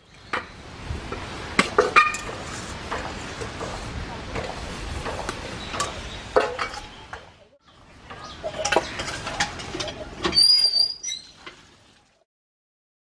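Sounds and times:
utensils clinking on steel pan: 8.2s - 10.4s.

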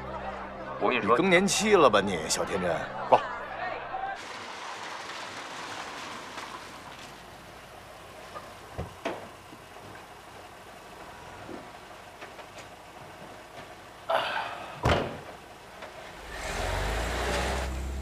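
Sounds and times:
low engine hum: 5.1s - 18.0s
car door shutting: 14.8s - 15.4s.

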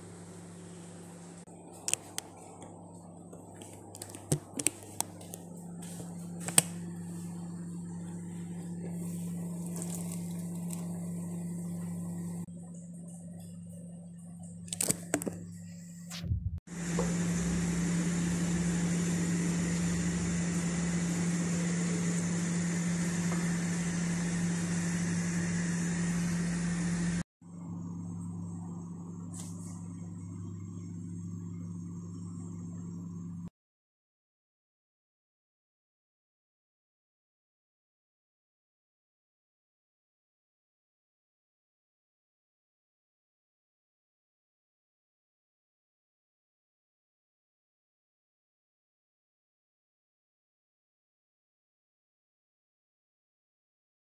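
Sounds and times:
steady low hum: 0.0s - 22.3s.

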